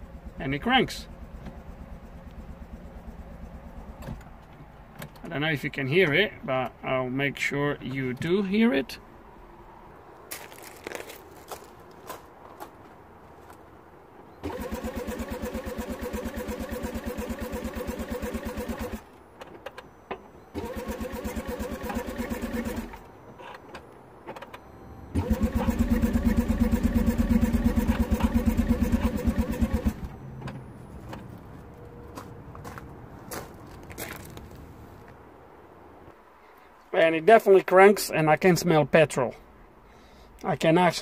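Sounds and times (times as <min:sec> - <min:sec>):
car engine cranking by starter: 0:00.0 - 0:05.4, 0:14.3 - 0:31.6.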